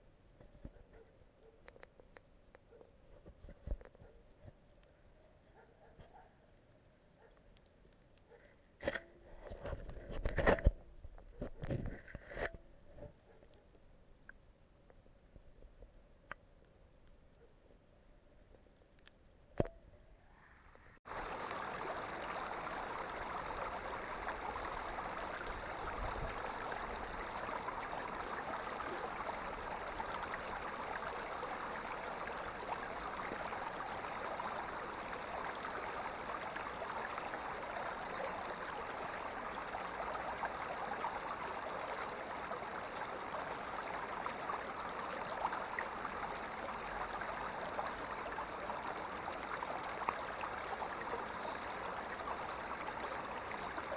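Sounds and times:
water rushing over rocks: 0:21.1 - 0:53.9.

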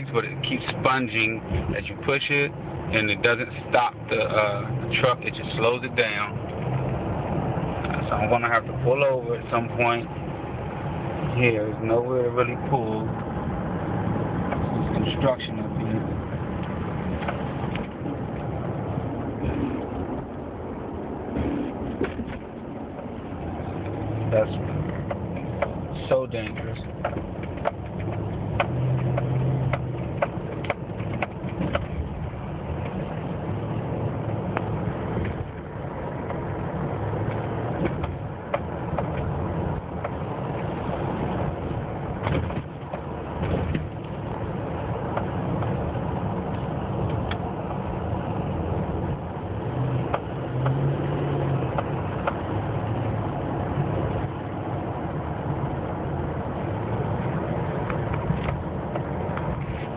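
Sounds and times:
truck engine and road noise: 0:00.0 - 0:59.9
sharp clicks and rattles: 0:14.3 - 0:20.1, 0:21.3 - 0:33.3, 0:34.3 - 0:47.9, 0:56.6 - 0:59.9.

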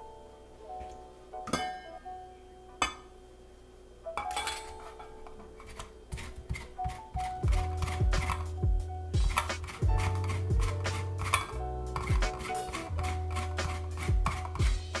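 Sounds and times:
hip-hop music: 0:07.4 - 0:15.0
zester clinking on metal bowl: 0:09.3 - 0:14.7.

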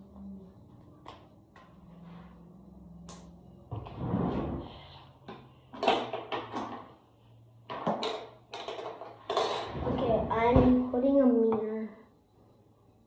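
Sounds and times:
faint low hum: 0:00.0 - 0:13.0
knocks and sliding clatter: 0:07.7 - 0:11.0.

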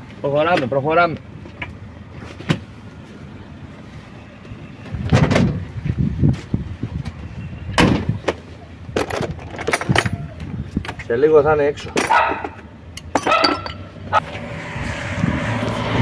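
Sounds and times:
wind rumble on microphone: 0:04.9 - 0:11.1, 0:14.0 - 0:16.0.

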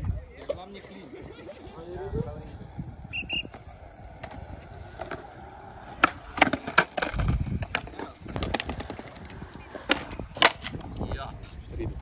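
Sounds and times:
skateboard wheels rumbling: 0:00.0 - 0:12.0
skateboard clacking on concrete: 0:02.4 - 0:11.0.

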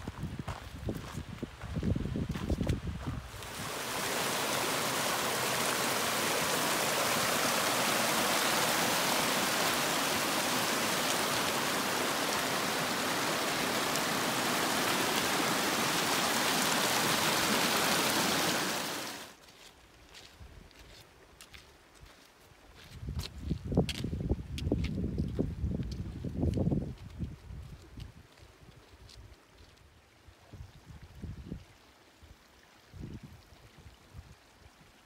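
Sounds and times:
water rushing: 0:03.3 - 0:19.4.

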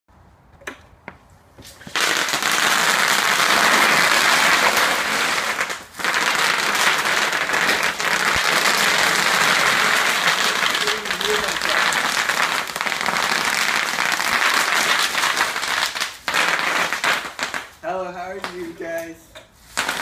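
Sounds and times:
bubble wrap popping under wheels: 0:01.7 - 0:17.8, 0:19.6 - 0:20.0.

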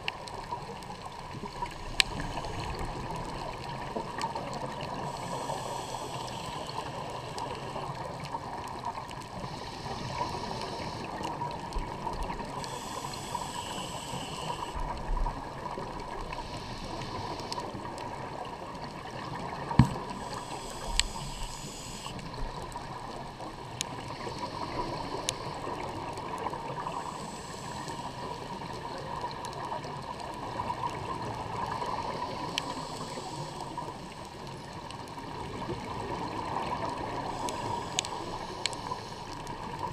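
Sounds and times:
steady background hiss: 0:01.4 - 0:08.6, 0:12.3 - 0:14.9, 0:19.2 - 0:29.8, 0:30.6 - 0:39.9.

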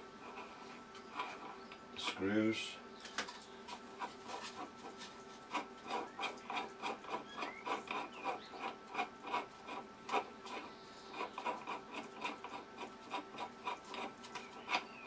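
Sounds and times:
rhythmic scraping clicks: 0:03.3 - 0:15.0.

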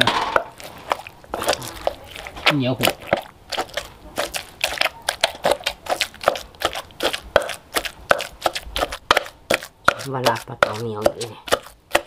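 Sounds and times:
pestle pounding in a mortar: 0:00.0 - 0:12.0.

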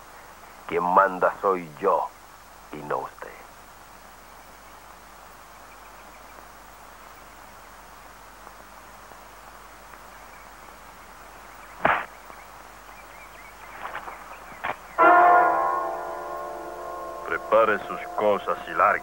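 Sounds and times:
faint hiss: 0:00.0 - 0:15.0, 0:15.6 - 0:19.0
punch sound effect: 0:11.8 - 0:12.1
light knocks and scuffs: 0:13.7 - 0:14.9.

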